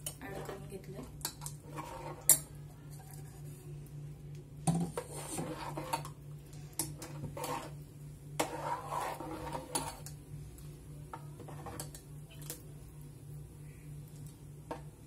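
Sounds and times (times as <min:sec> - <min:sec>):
spoon stirring curry in pot: 0:00.0 - 0:03.2, 0:06.8 - 0:10.2, 0:11.0 - 0:12.1.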